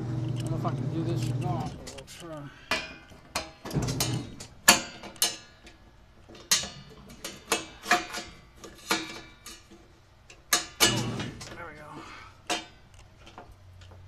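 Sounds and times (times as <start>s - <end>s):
sharp metallic clicks and knocks: 0.2s - 11.6s.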